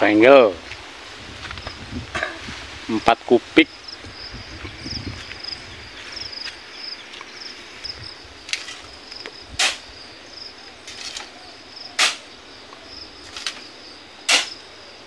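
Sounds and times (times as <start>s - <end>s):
insects chirping: 0.0s - 15.0s
shovel scooping sand: 14.3s - 14.6s.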